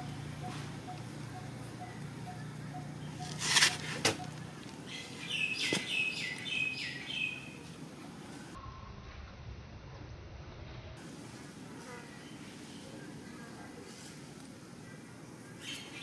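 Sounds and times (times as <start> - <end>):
bird chirping: 0.0 - 7.6.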